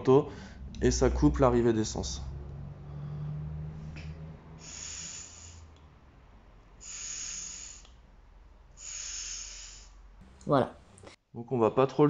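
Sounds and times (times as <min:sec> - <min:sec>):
puffs of breath blown: 0:02.6 - 0:05.8, 0:06.7 - 0:08.1, 0:08.7 - 0:10.2.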